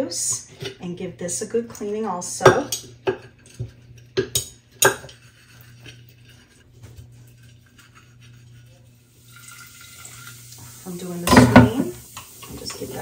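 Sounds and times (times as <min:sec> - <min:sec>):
low steady hum: 0:00.0 - 0:13.0
scrubbing and light knocks: 0:04.9 - 0:09.0.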